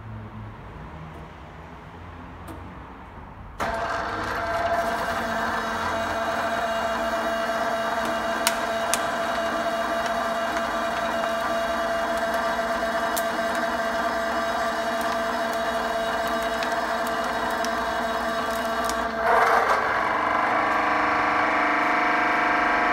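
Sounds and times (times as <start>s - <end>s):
plastic bottle crushing: 3.6s - 19.8s
hydraulic press humming: 3.6s - 22.9s.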